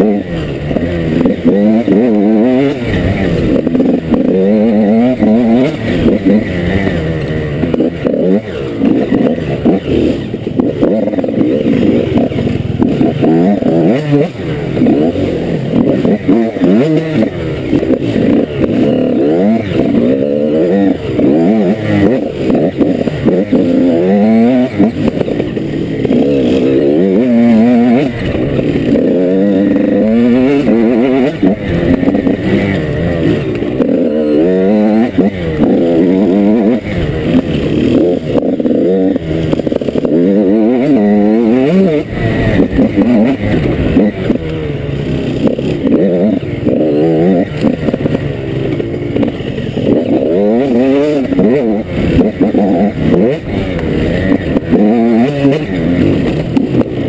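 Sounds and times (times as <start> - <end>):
dirt bike engine revving: 0.0 - 57.0.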